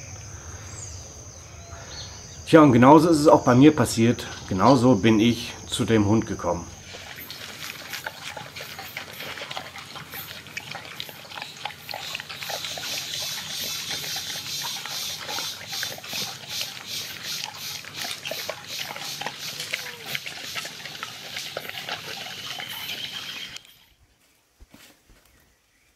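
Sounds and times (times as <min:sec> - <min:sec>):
dog chewing food from steel bowl: 0:06.2 - 0:23.6.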